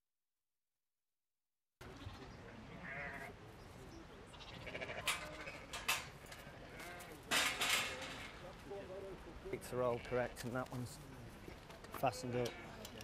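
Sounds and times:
sheep bleating: 0:02.0 - 0:03.4, 0:04.3 - 0:07.2, 0:12.3 - 0:12.8.

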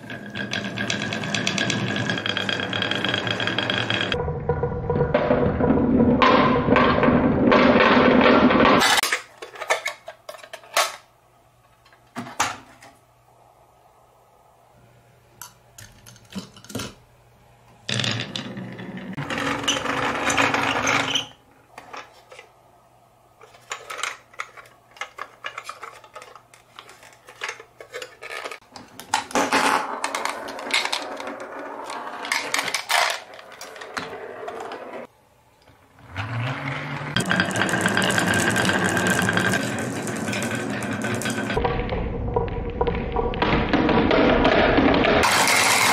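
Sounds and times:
marbles rolling on wooden track: 0:00.0 - 0:04.2, 0:17.9 - 0:21.3, 0:29.2 - 0:35.1, 0:36.1 - 0:45.9.

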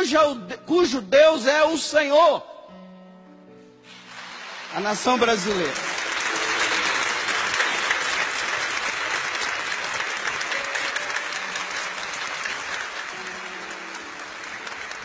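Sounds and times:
congregation applauding: 0:03.9 - 0:15.0.

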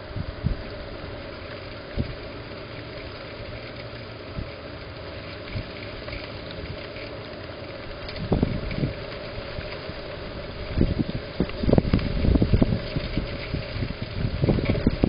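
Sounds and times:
wind buffeting microphone: 0:00.0 - 0:01.0, 0:01.8 - 0:02.3, 0:07.8 - 0:15.0.

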